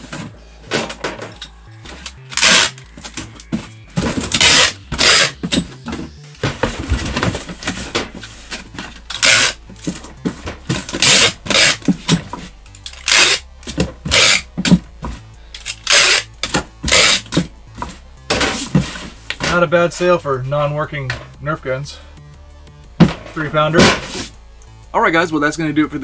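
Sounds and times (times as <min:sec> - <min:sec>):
packing tape pulled from tape gun: 0:01.9 - 0:03.5, 0:04.3 - 0:05.4, 0:09.1 - 0:09.6, 0:10.8 - 0:11.9, 0:12.8 - 0:13.4, 0:14.1 - 0:14.5, 0:15.6 - 0:16.3, 0:16.9 - 0:17.3.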